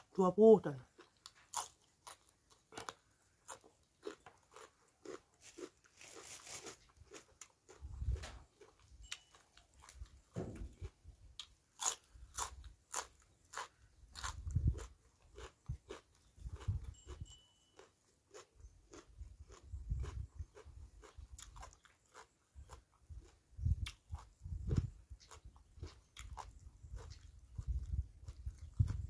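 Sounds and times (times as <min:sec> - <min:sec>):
chewing and crunching: 0:00.7 - 0:29.0.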